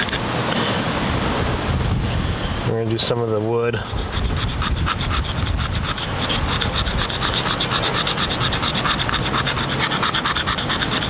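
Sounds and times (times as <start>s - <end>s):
wood being scraped: 3.8s - 11.0s.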